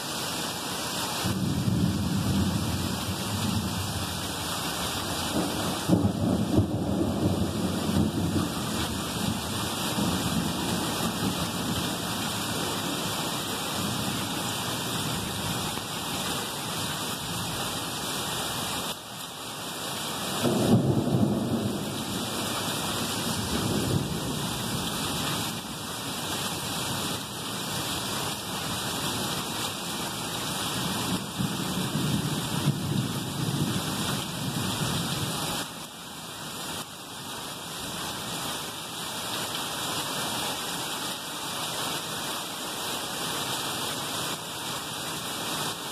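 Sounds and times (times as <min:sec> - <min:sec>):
heavy rain pouring: 0:00.0 - 0:45.9
thunder rumbling: 0:01.2 - 0:12.9, 0:20.4 - 0:25.7.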